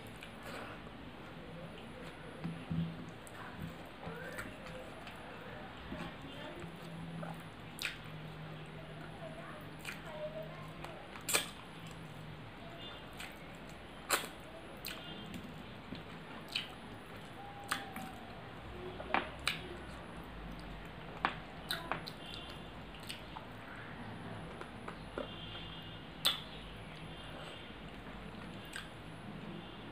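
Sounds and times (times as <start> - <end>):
wet chewing and lip-smacking: 6.6 - 8.7, 9.8 - 10.2, 11.1 - 12.1, 13.2 - 18.4, 20.5 - 23.6, 26.2 - 28.9.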